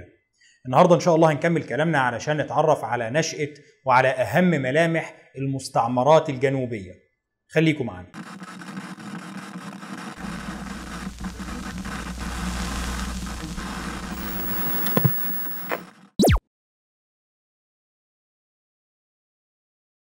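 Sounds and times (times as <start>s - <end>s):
static-like hissing: 9.9s - 15.9s.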